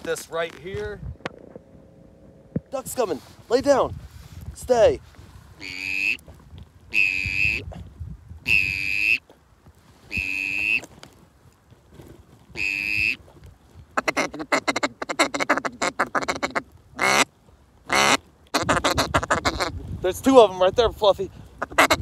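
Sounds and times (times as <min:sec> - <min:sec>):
duck call quacks: 0:05.6 - 0:06.2, 0:06.9 - 0:07.6, 0:08.5 - 0:09.2, 0:10.1 - 0:10.8, 0:12.6 - 0:13.2, 0:14.0 - 0:17.3, 0:17.9 - 0:19.8, 0:21.6 - 0:22.0.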